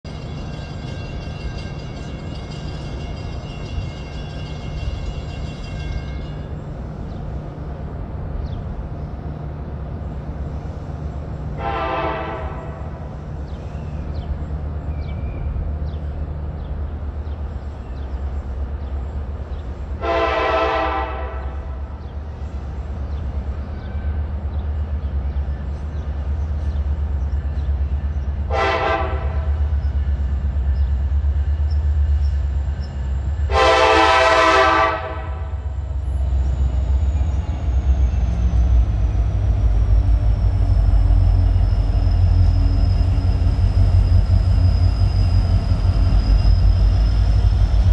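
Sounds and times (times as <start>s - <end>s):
diesel locomotive horn blasts: 11.5s - 13.2s, 20.0s - 22.0s, 28.4s - 29.8s, 33.4s - 35.8s.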